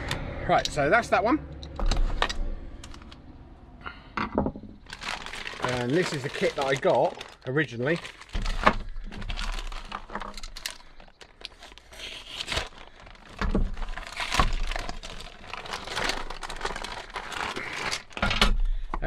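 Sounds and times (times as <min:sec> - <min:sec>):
plastic bag crinkling: 0:04.8 - 0:18.3
knife slitting plastic: 0:08.2 - 0:18.3.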